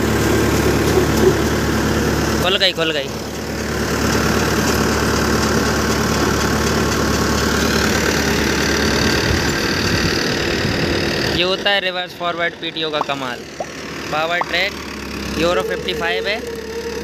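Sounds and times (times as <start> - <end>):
tractor engine driving thresher: 0.0 - 11.7.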